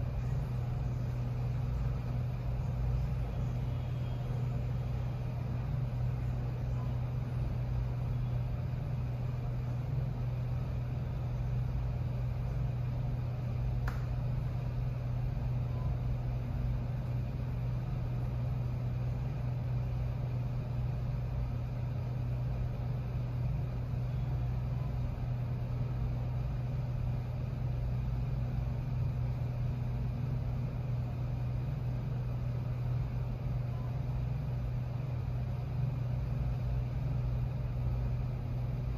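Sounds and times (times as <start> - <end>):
low machine hum: 0.0 - 38.9
faint click: 13.8 - 14.1.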